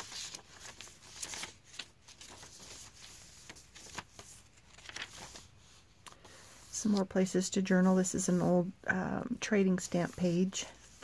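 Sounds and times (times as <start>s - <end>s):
paper pages rustling: 0.0s - 7.2s.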